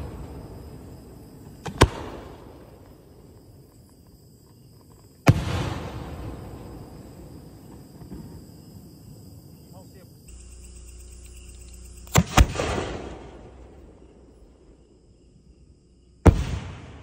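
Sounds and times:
rumble: 0:00.0 - 0:09.6, 0:10.2 - 0:17.0
firework mortar bang: 0:05.3 - 0:08.4, 0:12.1 - 0:13.7, 0:16.3 - 0:17.0.

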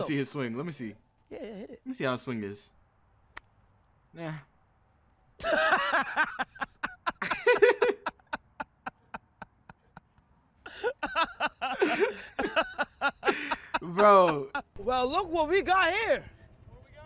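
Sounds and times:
people laughing hard: 0:05.4 - 0:14.8.

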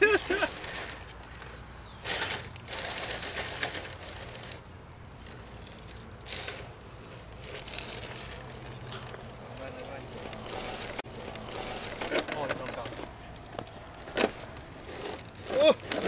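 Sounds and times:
small electric motor and gears: 0:02.0 - 0:13.1.

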